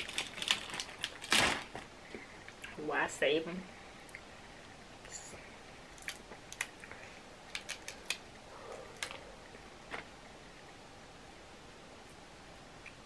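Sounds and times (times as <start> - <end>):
crab shells cracking: 0.0 - 1.6, 5.9 - 9.2.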